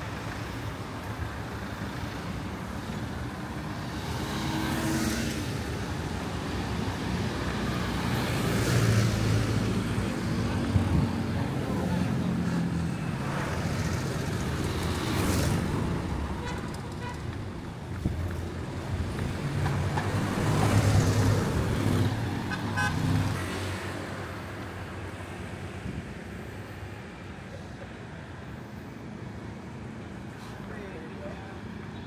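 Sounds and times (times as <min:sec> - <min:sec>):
passing traffic: 0:00.0 - 0:32.0.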